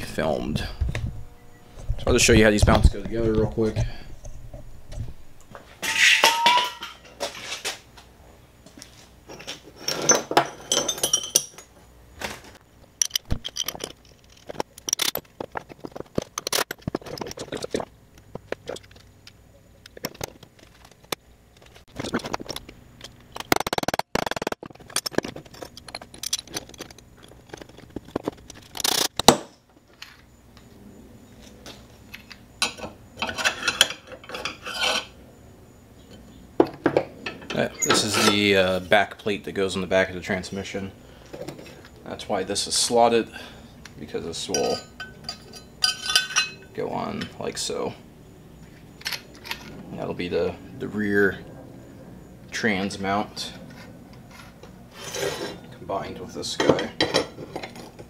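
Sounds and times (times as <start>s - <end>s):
metal parts clinking and scraping: 3.6s - 7.8s, 9.3s - 11.7s, 13.0s - 30.3s, 31.7s - 35.2s, 37.2s - 39.4s, 44.3s - 47.4s, 48.6s - 49.8s, 53.4s - 58.0s.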